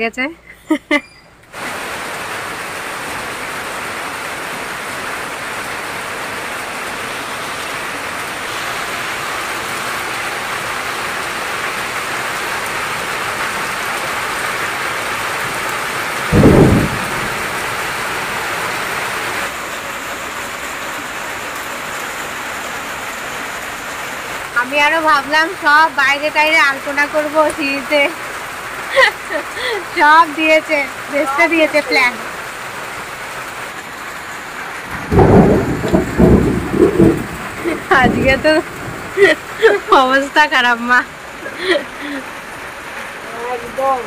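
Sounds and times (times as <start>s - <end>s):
heavy rain falling: 1.4s - 44.0s
loud low boom: 16.3s - 17.6s.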